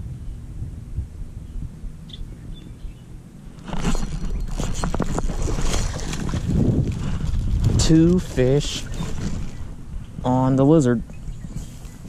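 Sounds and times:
wind rumble on microphone: 0.0s - 12.0s
water splashing: 3.6s - 9.8s.

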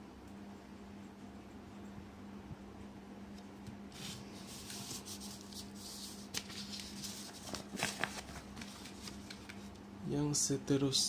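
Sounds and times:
paper rustling and scraping: 3.9s - 9.7s.

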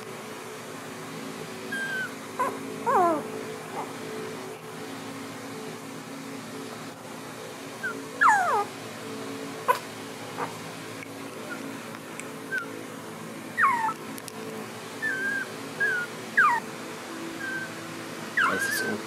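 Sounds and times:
puppies whimpering: 1.7s - 4.0s, 7.8s - 8.7s, 9.7s - 10.6s, 11.4s - 11.7s, 13.6s - 14.0s, 15.0s - 16.7s, 17.4s - 17.8s, 18.4s - 19.0s.

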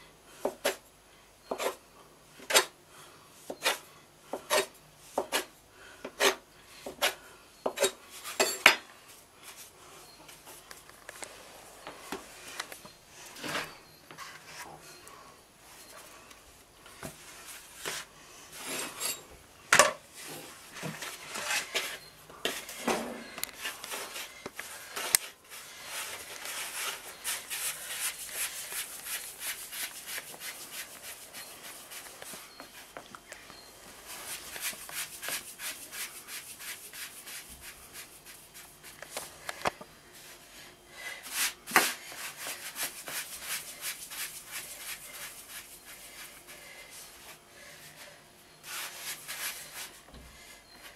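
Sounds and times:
hands rubbing dough: 23.6s - 33.0s, 33.8s - 39.4s, 41.1s - 50.1s.

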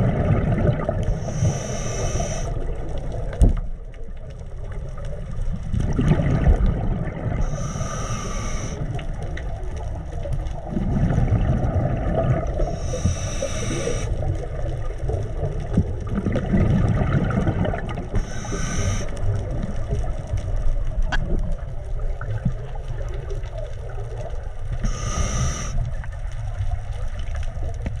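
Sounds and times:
underwater bubbles rumble: 0.0s - 28.0s
regulator hissing inhale: 1.0s - 2.7s, 7.4s - 9.0s, 12.6s - 14.3s, 18.2s - 19.4s, 24.8s - 26.0s.

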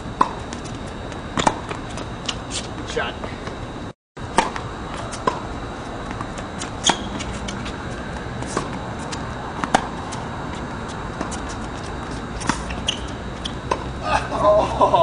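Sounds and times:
ball bouncing on hard court: 1.4s - 1.8s, 9.6s - 10.0s
rackets striking tennis ball: 1.4s - 2.4s, 4.3s - 5.5s, 6.1s - 10.2s.

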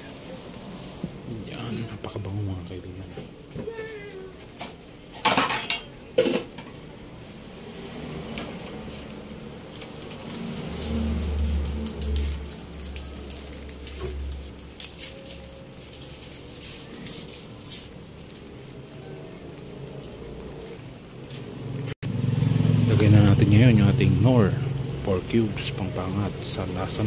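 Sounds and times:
low rumble: 10.4s - 16.3s.

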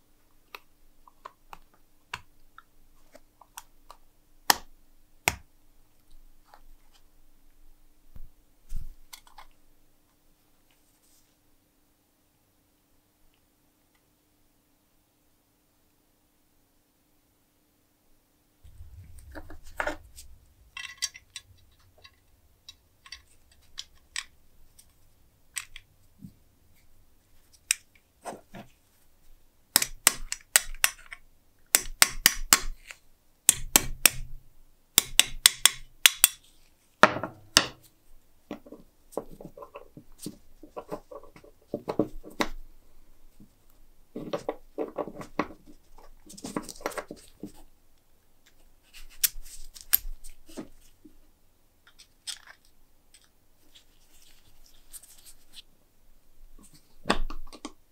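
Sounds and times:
metal clinking and rattling: 18.7s - 24.3s
stick tapping on steel: 31.8s - 32.8s, 35.0s - 36.4s.

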